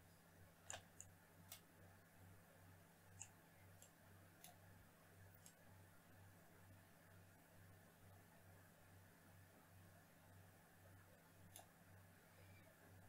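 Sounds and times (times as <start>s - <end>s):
faint low hum: 0.0s - 13.0s
computer mouse clicks: 0.7s - 1.7s, 3.2s - 4.6s, 5.3s - 5.6s, 11.4s - 11.8s.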